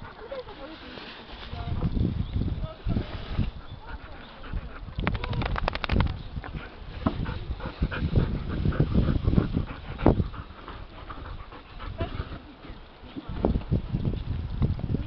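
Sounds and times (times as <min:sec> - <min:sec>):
dog panting: 0:03.6 - 0:05.1, 0:06.5 - 0:12.6.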